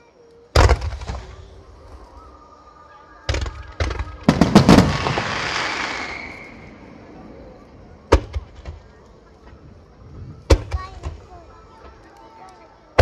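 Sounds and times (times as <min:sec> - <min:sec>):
firework hiss and crackle: 0:03.3 - 0:09.1.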